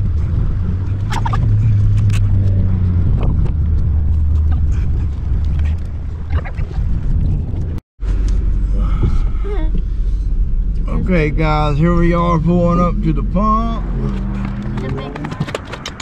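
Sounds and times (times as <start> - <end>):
vehicle engine droning: 0.0 - 16.0
knocks and rattles: 14.4 - 16.0.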